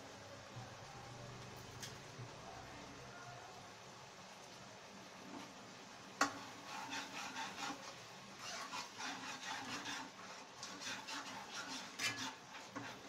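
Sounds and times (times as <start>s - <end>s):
spoon scraping and stirring: 6.2s - 13.0s.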